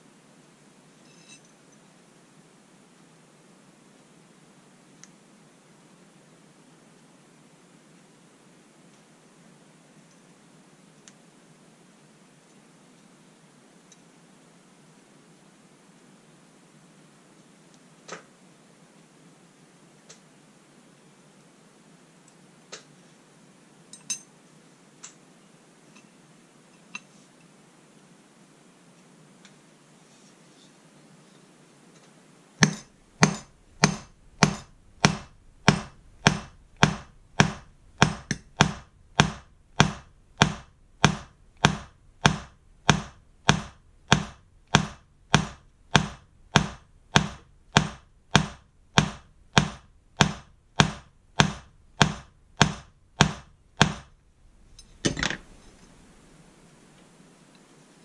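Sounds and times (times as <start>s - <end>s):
double knock: 32.6s - 54.1s
hammer tapping metal hook: 32.6s - 54.1s.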